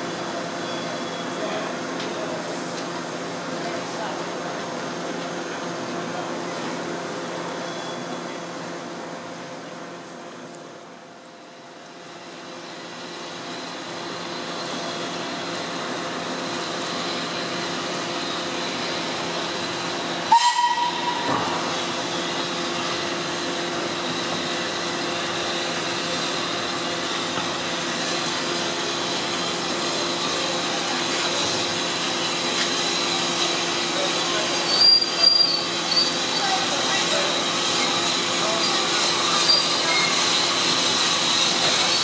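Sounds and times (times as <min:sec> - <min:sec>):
steam locomotive whistle: 0:20.2 - 0:21.4.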